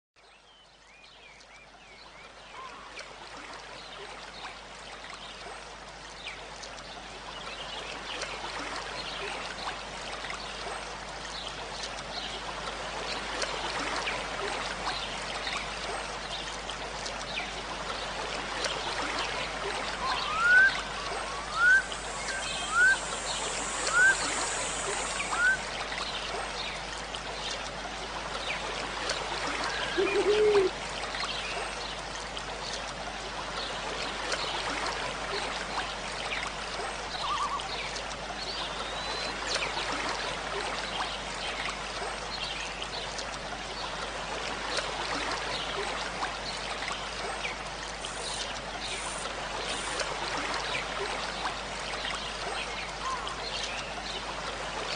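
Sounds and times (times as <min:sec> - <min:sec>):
running water: 0:01.4 - 0:54.9
bird chirping: 0:20.0 - 0:25.6.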